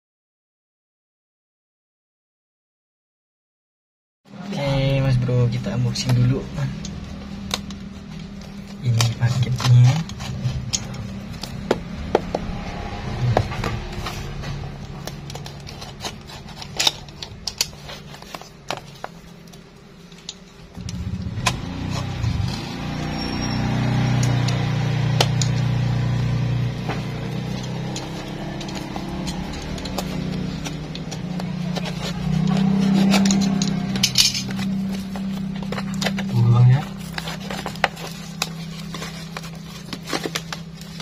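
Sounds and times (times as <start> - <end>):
low hum: 4.3 - 41.0
knife slitting tape and cardboard: 13.5 - 19.2, 24.0 - 41.0
parcel clicks and rustles: 13.5 - 23.3, 23.9 - 41.0.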